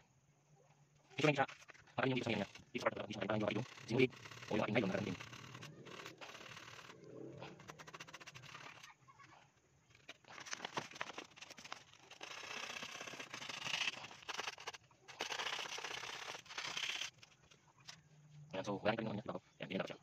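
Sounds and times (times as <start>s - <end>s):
wire scraping on hard surface: 1.4s - 9.0s, 9.9s - 18.0s.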